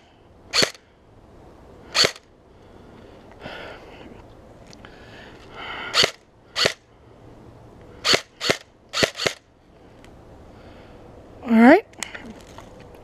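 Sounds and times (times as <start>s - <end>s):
airsoft gun shots cracking: 0.5s - 0.8s, 8.0s - 9.4s.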